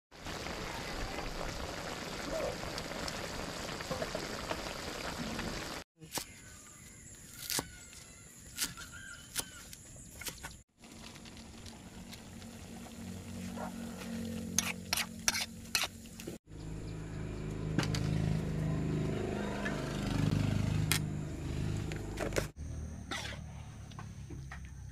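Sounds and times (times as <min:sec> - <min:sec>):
food sizzling in a wok: 0:00.1 - 0:05.8.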